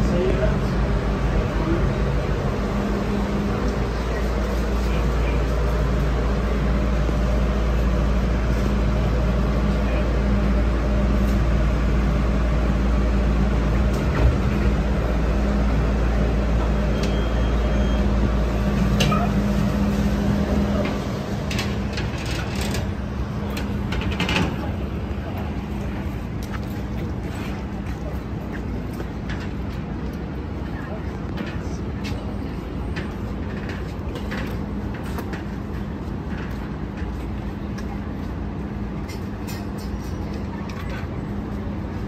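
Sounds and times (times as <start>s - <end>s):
railway car hum and rumble: 0.0s - 42.0s.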